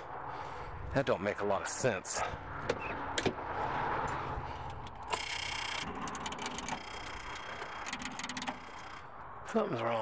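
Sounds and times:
starter circuit clicking: 5.0 - 9.1.

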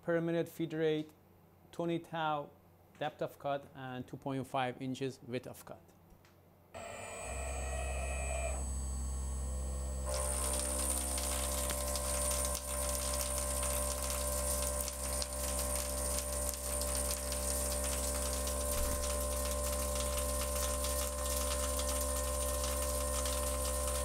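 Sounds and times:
mill spindle whine: 6.8 - 24.0
metal cutting crackle: 10.0 - 24.0.

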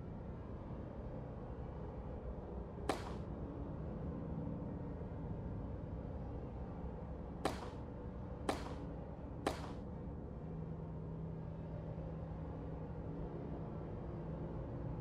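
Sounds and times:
whip-like cracks with swish: 2.9 - 3.3, 7.5 - 7.9, 8.5 - 8.9, 9.5 - 9.8.

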